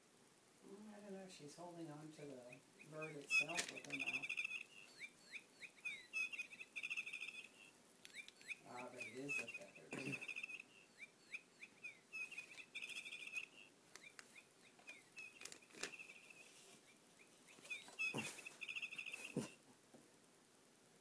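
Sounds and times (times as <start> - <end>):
electronic bird chirps from toy: 2.5 - 16.5, 17.2 - 19.4.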